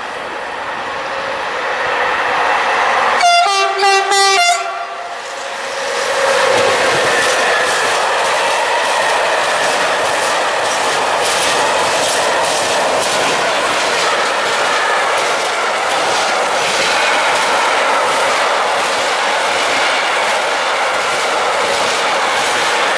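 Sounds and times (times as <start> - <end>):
locomotive horn blasts: 3.2 - 5.1
wheels clacking over rail joints: 5.8 - 22.9.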